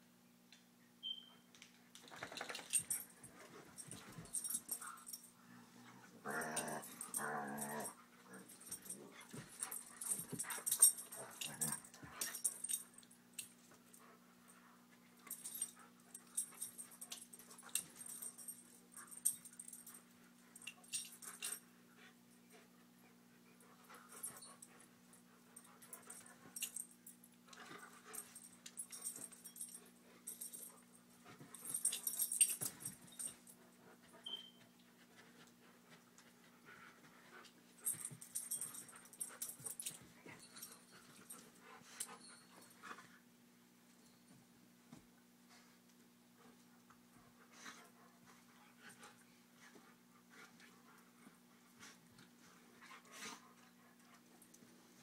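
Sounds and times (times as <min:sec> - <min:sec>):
dogs growling: 0:05.8 - 0:09.0.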